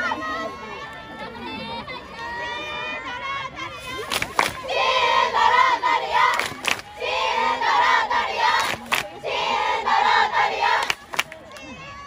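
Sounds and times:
women chanting in unison: 0:02.7 - 0:11.0.

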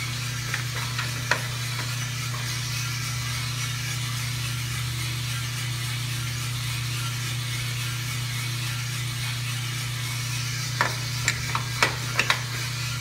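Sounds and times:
coffee roaster humming and hissing: 0:00.0 - 0:13.0.

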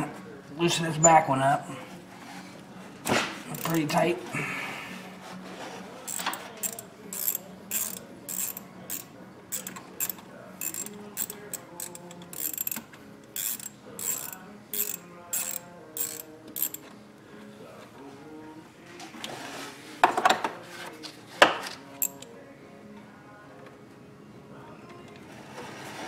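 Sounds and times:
hand ratchet clicking: 0:03.5 - 0:03.8, 0:06.1 - 0:12.8, 0:13.4 - 0:16.9, 0:22.0 - 0:22.3.

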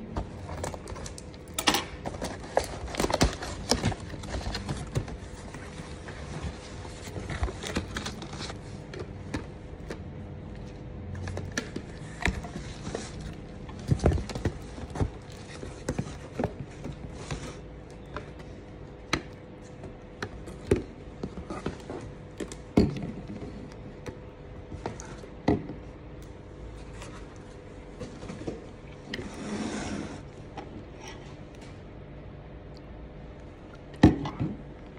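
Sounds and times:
packaging rustling: 0:00.4 - 0:09.2.

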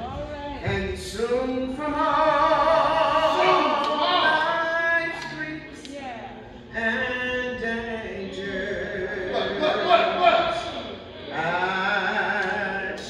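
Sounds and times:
woman singing with vibrato: 0:00.0 - 0:07.5.

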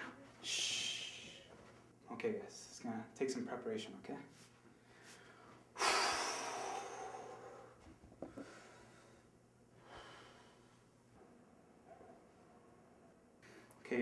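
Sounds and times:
person exhaling breathily: 0:05.8 - 0:08.9.

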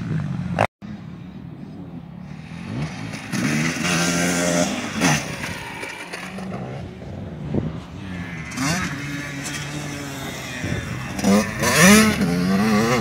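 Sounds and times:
dirt bike engine revving: 0:02.3 - 0:13.0.

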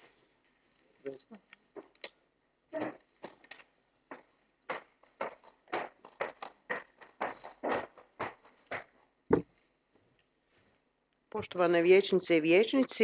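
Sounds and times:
high-heeled footsteps on wooden floor: 0:04.1 - 0:09.5
scattered knocks: 0:04.1 - 0:09.5.

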